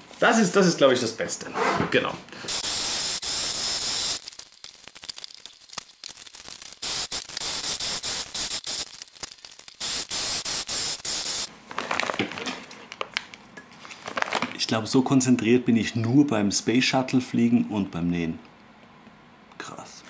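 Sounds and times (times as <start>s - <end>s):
plastic fabric crinkling: 11.6s - 13.2s, 13.8s - 14.6s.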